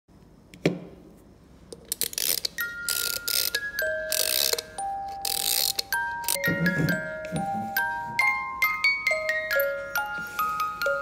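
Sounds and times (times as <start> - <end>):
wind-up ratcheting clicks: 1.9 - 6.4
music box notes: 2.5 - 11.0.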